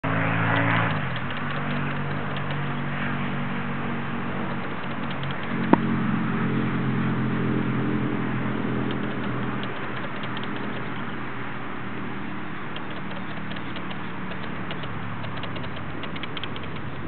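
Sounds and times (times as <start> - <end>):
steady engine hum: 0.0 - 17.0
sharp click: 0.4 - 2.9, 4.4 - 5.9, 8.8 - 11.2, 12.7 - 17.0.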